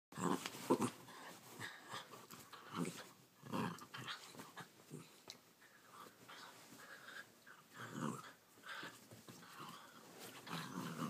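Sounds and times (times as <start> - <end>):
dog growling: 0.2 - 5.2, 7.7 - 8.8, 9.4 - 11.0.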